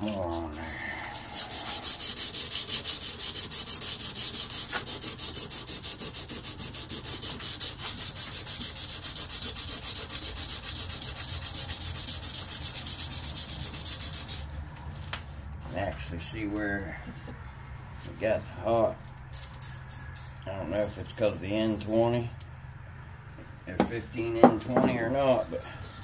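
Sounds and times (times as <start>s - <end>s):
sandpaper rasping on steel blade: 0.0s - 14.5s, 19.4s - 22.2s.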